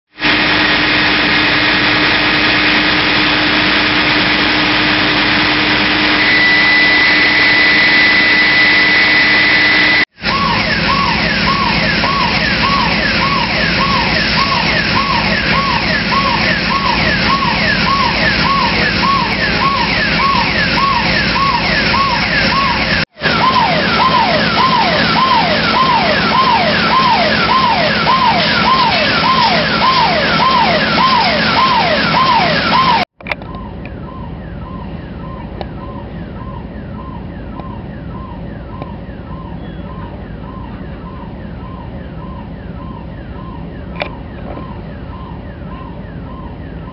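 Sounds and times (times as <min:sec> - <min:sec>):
high steady whistle: 0:00.2 - 0:33.0
emergency sirens yelping: 0:00.2 - 0:46.9.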